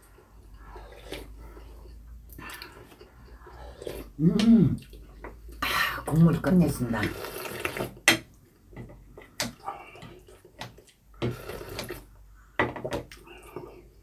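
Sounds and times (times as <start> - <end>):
slurping soup from bowl: 7.0 - 8.0.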